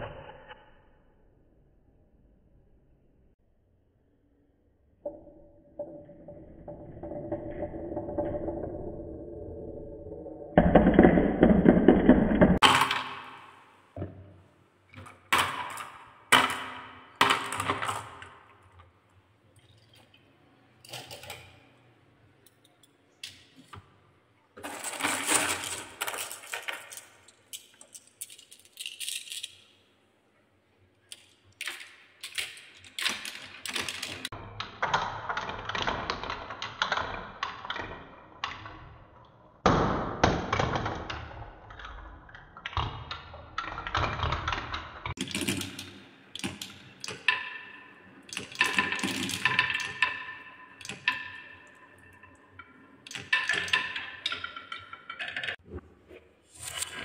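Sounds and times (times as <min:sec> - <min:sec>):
marbles rolling down wooden run: 0:05.8 - 0:13.7, 0:24.6 - 0:29.6, 0:31.1 - 0:34.4, 0:45.1 - 0:55.6
marbles clicking and clattering: 0:15.0 - 0:18.8, 0:24.6 - 0:29.8, 0:31.1 - 0:34.4, 0:43.6 - 0:55.6.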